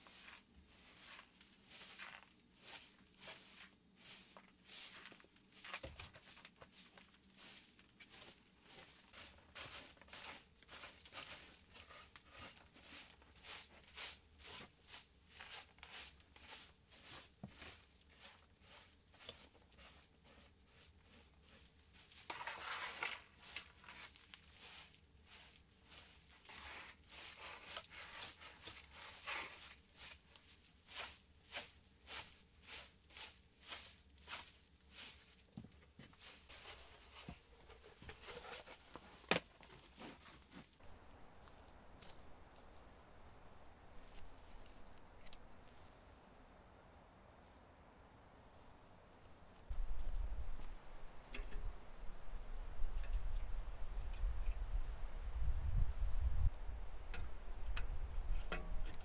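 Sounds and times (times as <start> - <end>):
broom sweeping wooden floor: 0.0 - 42.2
broom scrape: 0.0 - 42.9.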